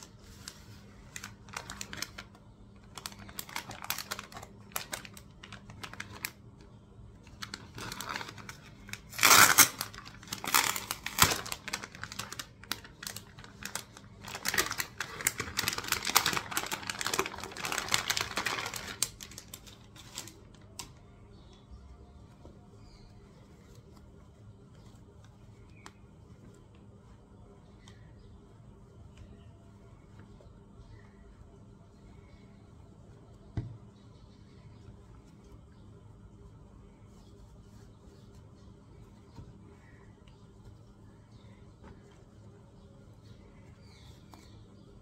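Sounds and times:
plastic bags crinkling: 0:00.4 - 0:06.5, 0:07.2 - 0:20.9.

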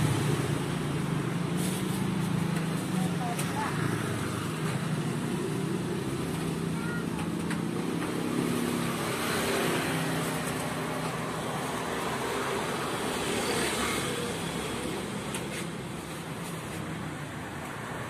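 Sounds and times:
road traffic noise: 0:00.0 - 0:18.0.

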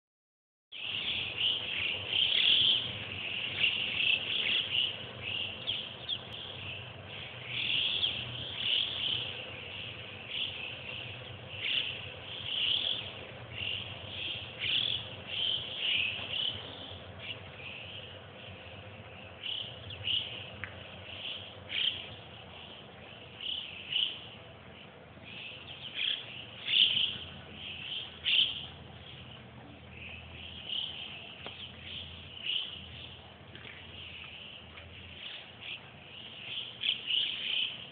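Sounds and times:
birds whistling calls: 0:00.7 - 0:37.9.

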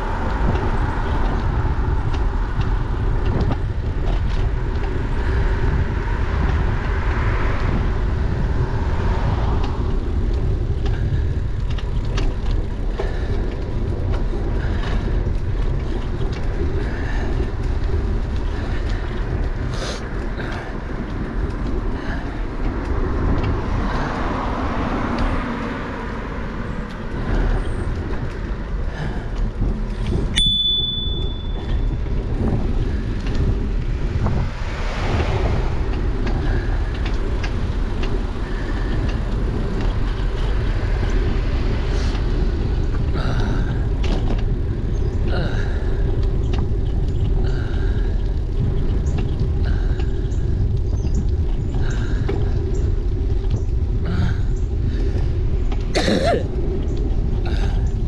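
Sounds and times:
cars passing: 0:00.0 - 0:58.0
wind rumble on microphone: 0:00.0 - 0:58.0
bicycle bell ding: 0:30.4 - 0:31.6.

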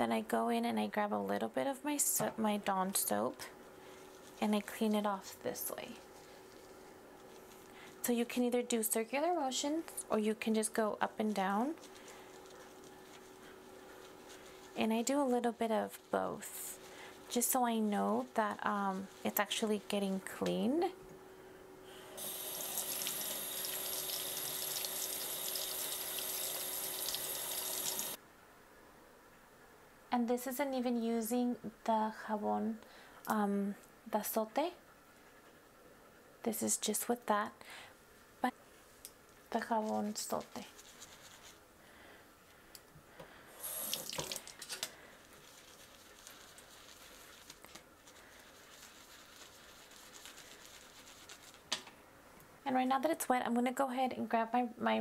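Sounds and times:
brush scrubbing: 0:11.2 - 0:20.0, 0:39.6 - 0:41.6, 0:45.2 - 0:51.7
tap water running into sink: 0:22.2 - 0:28.2, 0:43.7 - 0:44.5.

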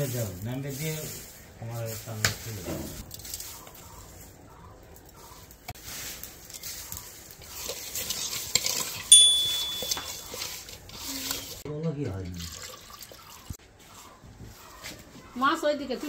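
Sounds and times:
hands mixing wet fish: 0:05.0 - 0:11.6
sharp metallic clink: 0:09.1 - 0:10.2.

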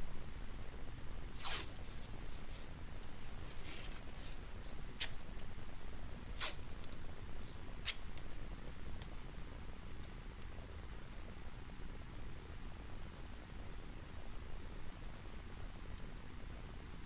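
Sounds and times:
faint steady hiss: 0:00.0 - 0:17.0
tape crinkling: 0:01.3 - 0:05.5
tape ripping: 0:01.4 - 0:02.1, 0:06.4 - 0:06.6.

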